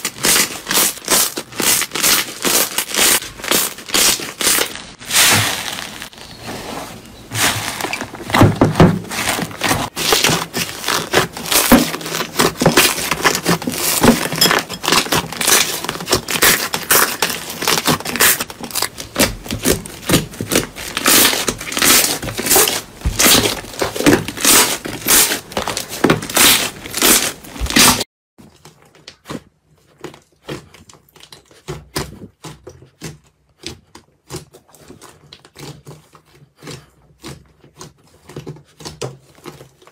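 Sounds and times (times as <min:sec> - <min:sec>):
slime crackling and popping: 0:00.0 - 0:06.3, 0:09.1 - 0:28.0.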